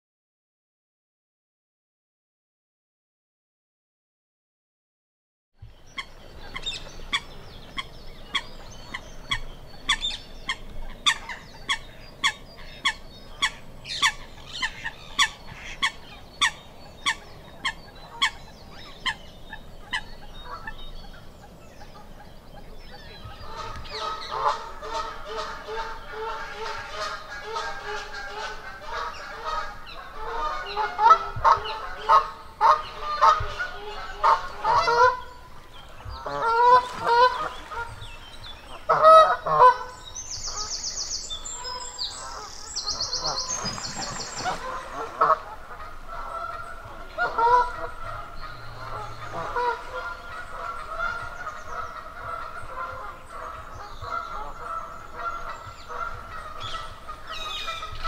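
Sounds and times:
geese honking: 23.4s - 35.4s, 36.2s - 40.8s, 41.5s - 58.0s.

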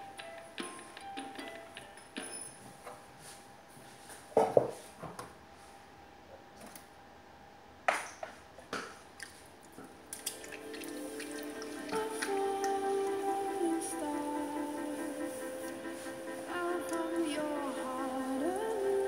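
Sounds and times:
potter's wheel motor hum: 9.9s - 19.0s.

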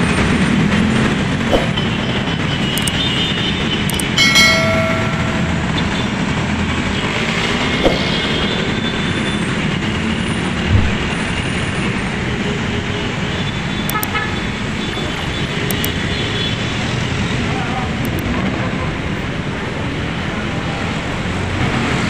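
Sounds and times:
city traffic rumble: 0.0s - 22.0s
car horn: 13.1s - 16.7s.

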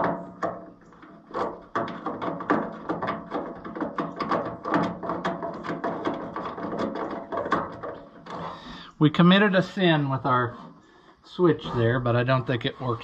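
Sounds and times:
small clicks and rattles: 0.0s - 8.6s.

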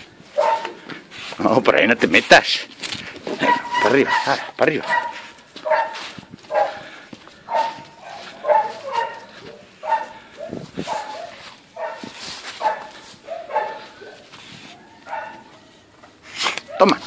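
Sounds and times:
dog whining and yelping: 3.3s - 4.4s, 7.5s - 15.6s.

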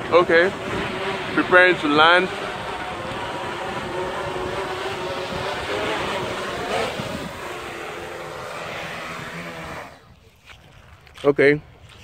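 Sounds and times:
drone propellers buzzing: 0.0s - 10.2s.

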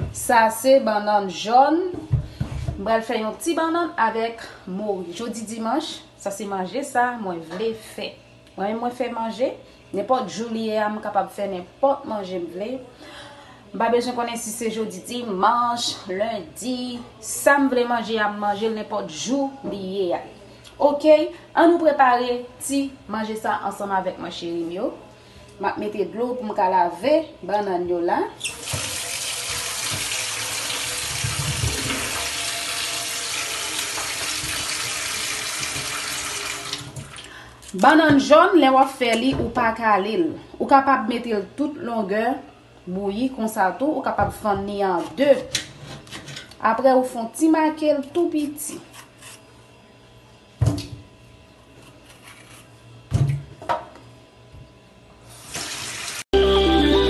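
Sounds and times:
tap water hissing: 28.4s - 37.2s, 55.3s - 56.2s
tap running into steel sink: 28.6s - 30.2s, 33.9s - 36.0s
electronic music: 56.4s - 57.0s.

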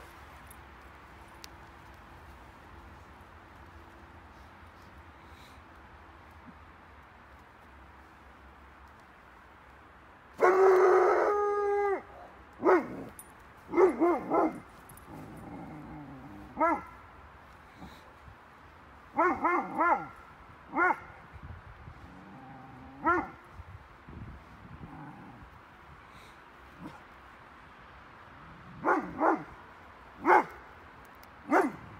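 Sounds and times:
dog barking: 12.6s - 13.1s, 13.7s - 14.6s, 16.6s - 17.0s, 19.2s - 21.1s, 23.0s - 23.4s, 28.8s - 29.5s, 30.2s - 30.6s, 31.5s - 31.8s.

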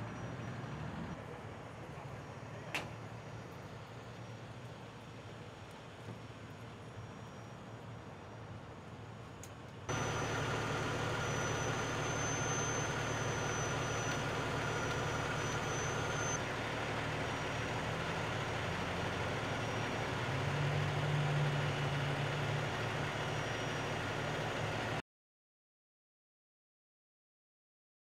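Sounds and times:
thin high whine: 9.9s - 16.4s
diesel engine idling: 9.9s - 25.0s.

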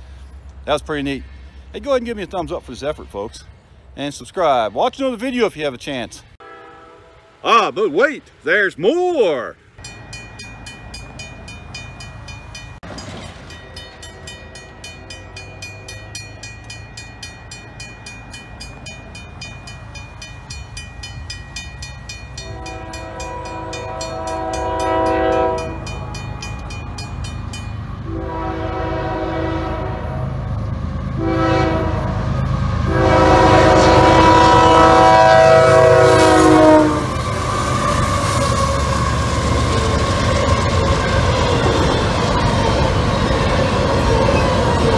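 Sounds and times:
locomotive air horn blasts: 6.4s - 7.4s, 22.4s - 26.1s, 28.0s - 30.4s, 31.1s - 32.2s, 32.8s - 38.2s
railroad crossing bell ringing: 9.8s - 30.6s.

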